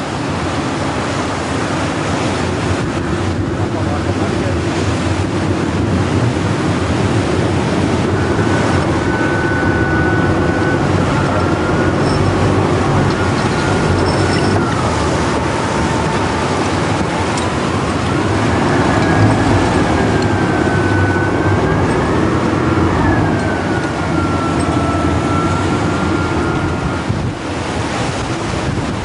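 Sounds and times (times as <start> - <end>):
boat engine running: 0.0 - 29.0
heavy wind: 0.0 - 29.0
rough sea: 0.0 - 29.0
faint whine: 7.1 - 27.4.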